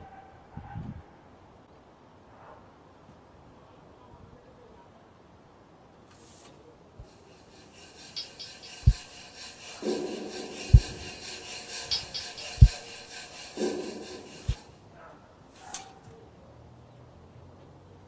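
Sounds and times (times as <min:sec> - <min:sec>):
hands scraping on table: 0:07.1 - 0:14.7.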